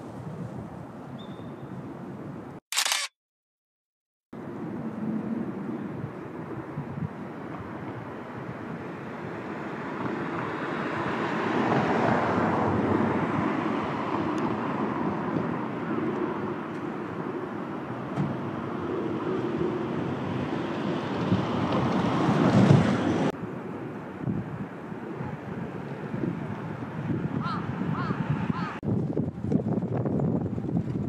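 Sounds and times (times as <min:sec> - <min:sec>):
traffic rushing past: 0:04.4 - 0:28.8
wind on microphone: 0:04.7 - 0:08.8, 0:18.3 - 0:31.0.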